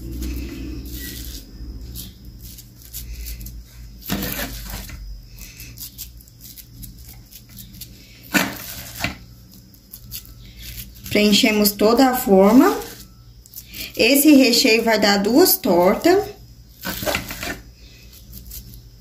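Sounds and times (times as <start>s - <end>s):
spoon scraping metal pan: 8.3s - 9.2s, 14.0s - 17.6s.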